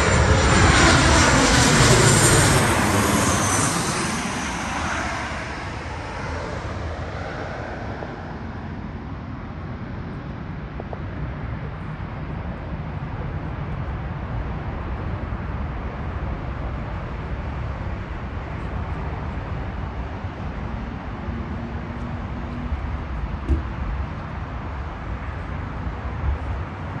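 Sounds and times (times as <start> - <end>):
jet engines rumbling: 0.0 - 27.0
short thump: 23.4 - 23.8.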